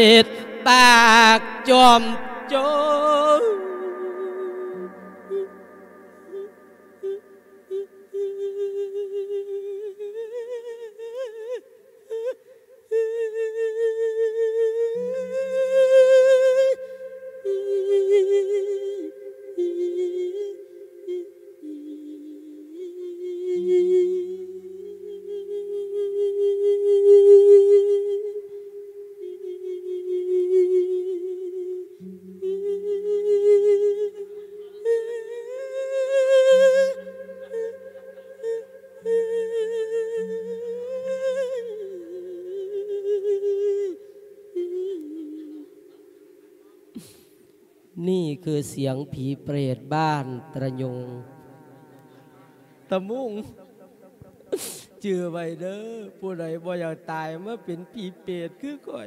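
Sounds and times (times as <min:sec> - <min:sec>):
person singing through microphone: 0:00.0 - 0:47.2, 0:48.0 - 0:59.0
low steady tone: 0:17.1 - 0:46.9.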